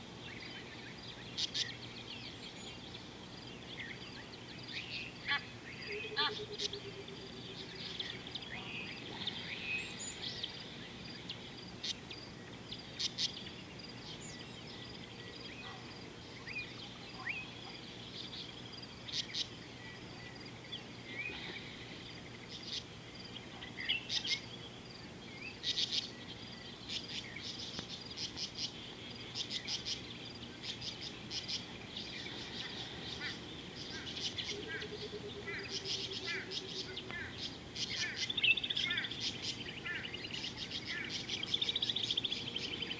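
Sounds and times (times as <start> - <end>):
birds chirping: 0.0 - 42.9
steady background hiss: 0.0 - 42.9.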